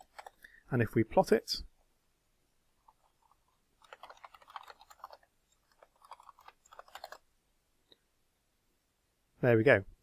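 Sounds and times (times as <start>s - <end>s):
typing on keyboard: 0.0s - 0.4s, 3.8s - 7.2s.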